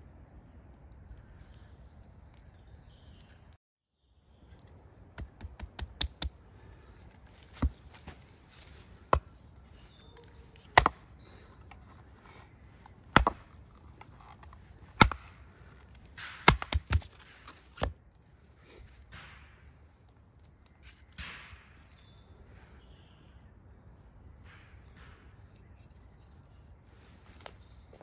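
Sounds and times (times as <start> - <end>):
machete chopping log: 7.4 - 9.4, 10.6 - 11.1, 13.1 - 13.6, 14.3 - 15.4, 16.2 - 18.0.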